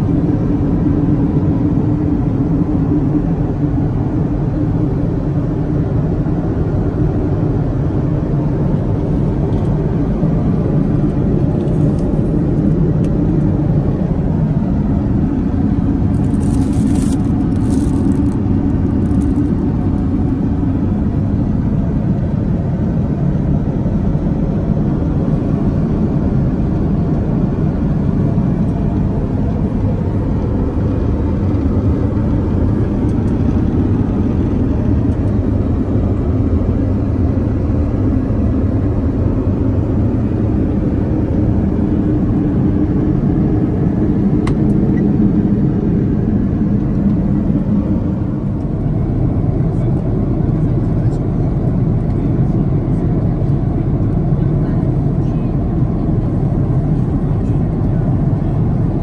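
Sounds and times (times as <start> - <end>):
aircraft cabin roar: 0.0 - 59.0.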